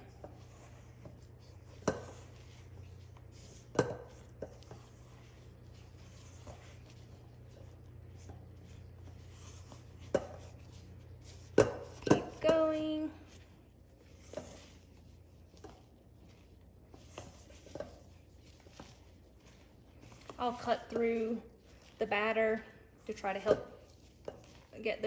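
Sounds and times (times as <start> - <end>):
spatula folding mixture in bowl: 0.0 - 25.0
spatula knocking against bowl: 1.0 - 2.4, 3.4 - 4.8, 10.0 - 12.8.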